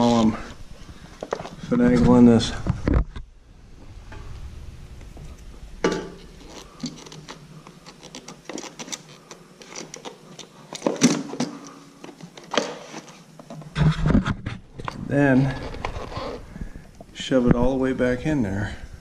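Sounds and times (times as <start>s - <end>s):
plastic case scraping against metal: 6.2s - 11.6s, 15.2s - 16.5s.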